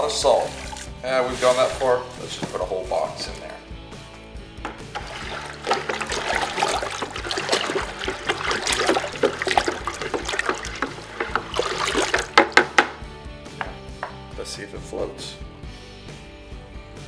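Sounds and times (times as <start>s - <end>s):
water sloshing in plastic bucket: 0.3s - 3.5s, 4.7s - 12.9s
wooden spoon stirring: 4.7s - 12.9s.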